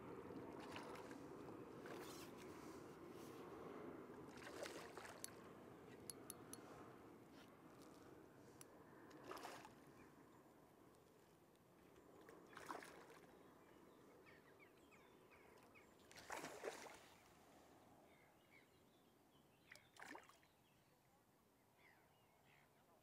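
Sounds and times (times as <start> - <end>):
fish splashing in water: 0.6 - 2.0, 4.3 - 5.4, 9.2 - 9.8, 12.5 - 13.3, 16.1 - 17.1.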